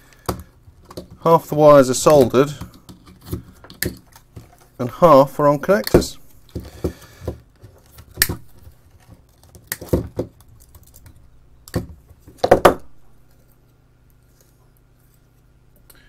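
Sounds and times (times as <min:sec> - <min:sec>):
clicks and knocks of parts handled: 0:00.1 - 0:01.3, 0:02.0 - 0:04.8, 0:05.7 - 0:12.5.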